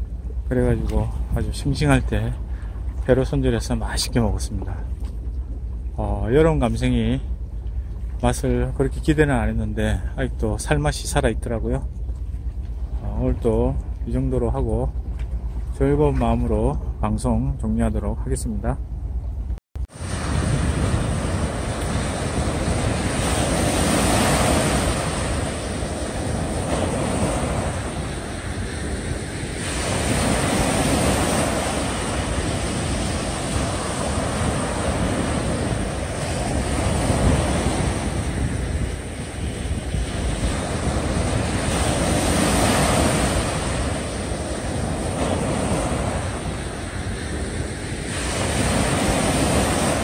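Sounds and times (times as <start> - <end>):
wind on microphone: 19.8 - 50.0
small waves breaking on beach: 19.9 - 50.0.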